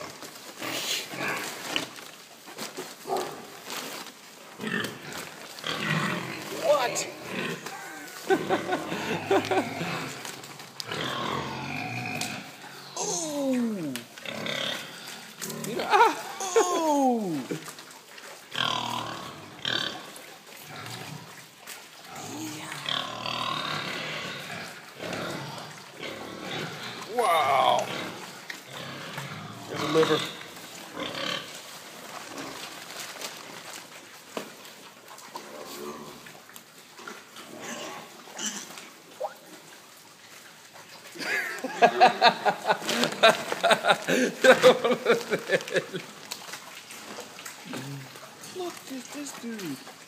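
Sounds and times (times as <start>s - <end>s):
pigs grunting and squealing: 0.0s - 2.1s, 4.6s - 33.8s, 35.2s - 50.0s
quick pitched vocal sounds: 13.0s - 14.0s.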